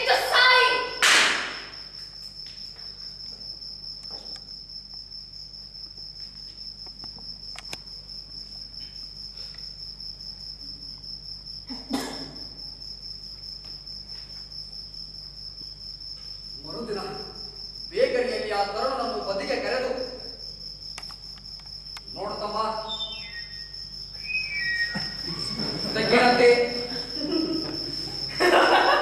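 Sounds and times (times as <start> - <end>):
crickets chirping: 0.0 - 29.0
brief thud: 1.0 - 1.8
sharp click: 20.9 - 22.1.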